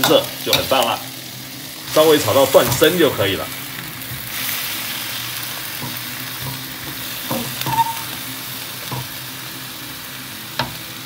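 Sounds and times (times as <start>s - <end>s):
food sizzling in a wok: 0.0s - 11.0s
ladle scraping a wok: 5.7s - 8.2s.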